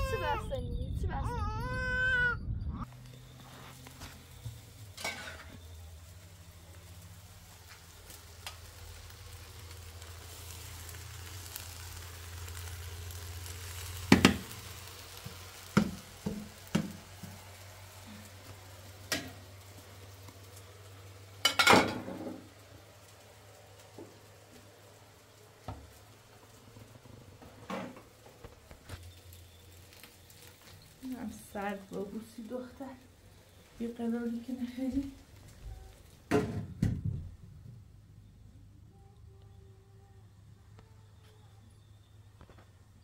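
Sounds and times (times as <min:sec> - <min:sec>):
faint sizzling: 0:02.8 - 0:37.2
low steady hum: 0:30.9 - 0:43.0.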